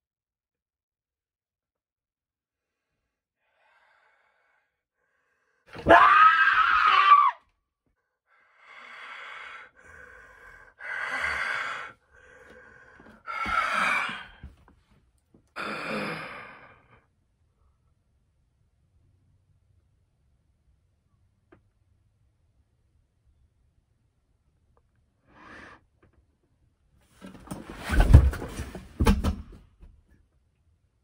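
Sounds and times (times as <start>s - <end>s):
person breathing close: 2.6s - 5.7s, 8.3s - 14.6s
person gasping: 8.6s - 14.6s, 15.6s - 16.9s.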